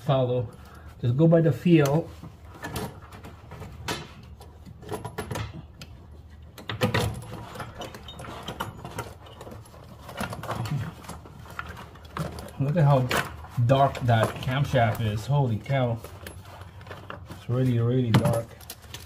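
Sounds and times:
metal bolts clinking and rattling: 0:02.5 - 0:15.3, 0:18.0 - 0:19.0.

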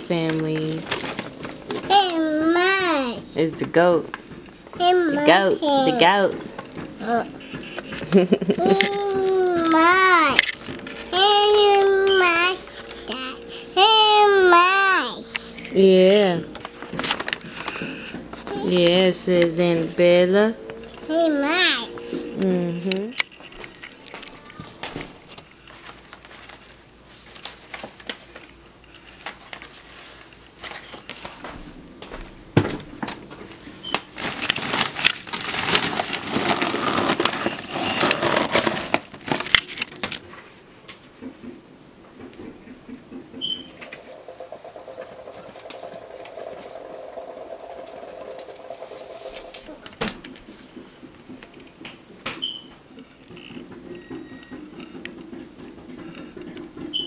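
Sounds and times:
paper and folders rustling: 0:00.0 - 0:03.8, 0:16.6 - 0:19.0, 0:23.3 - 0:31.7, 0:33.4 - 0:41.2, 0:43.8 - 0:50.4.

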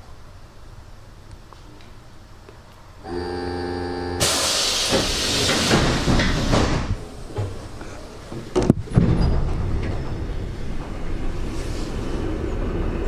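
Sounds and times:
air hissing from train doors: 0:04.2 - 0:08.3, 0:10.6 - 0:12.7
doors knocking shut: 0:04.9 - 0:07.6.

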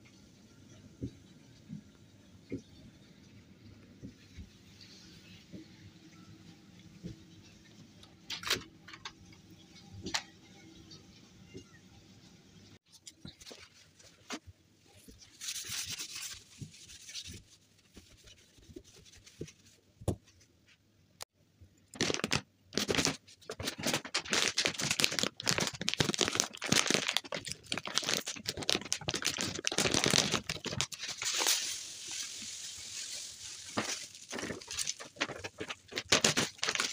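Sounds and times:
plastic bag crinkling and tearing: 0:21.9 - 0:36.9.

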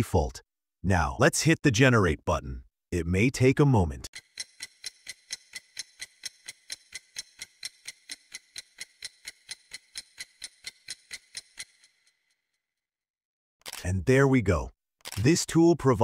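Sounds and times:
clock ticking: 0:04.0 - 0:11.9.

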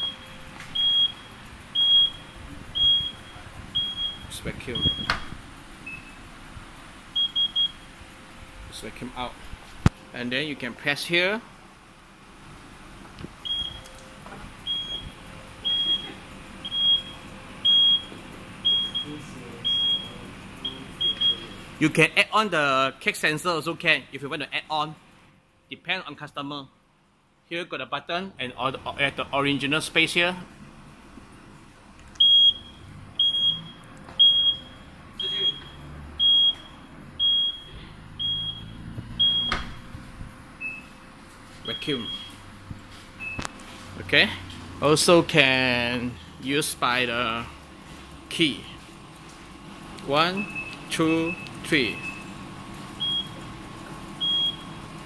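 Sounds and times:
low motor hum: 0:30.5 - 0:41.4
short high warning beeps: 0:32.2 - 0:39.6, 0:41.6 - 0:42.4.

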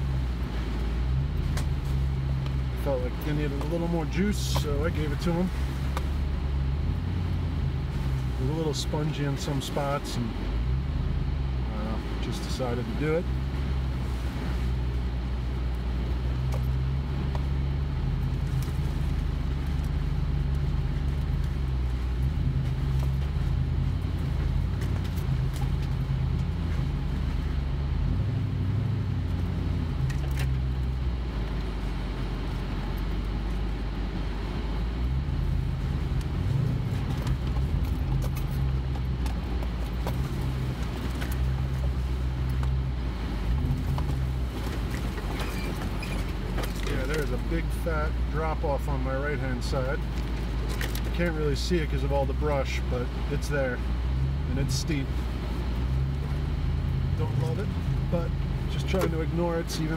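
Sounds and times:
low engine drone: 0:00.0 - 0:59.9.

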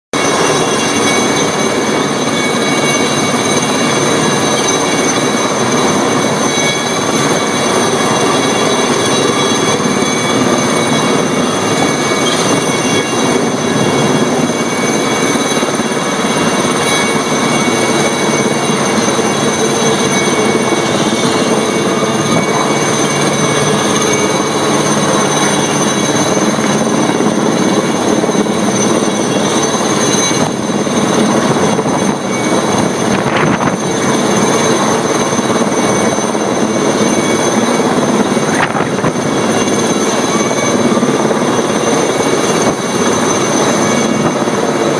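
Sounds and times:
helicopter rotor and turbine: 0:00.1 - 0:44.9.

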